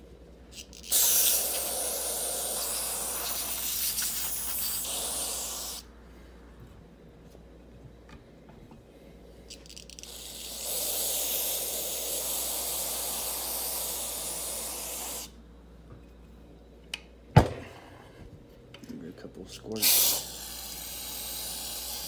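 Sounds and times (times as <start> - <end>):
aerosol can spraying hiss: 0.8 - 5.9, 10.0 - 15.4, 19.8 - 22.0.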